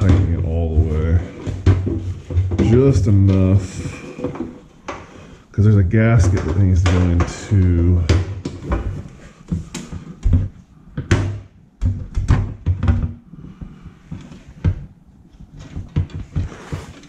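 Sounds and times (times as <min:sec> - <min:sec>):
scraping rub: 0:15.2 - 0:17.0.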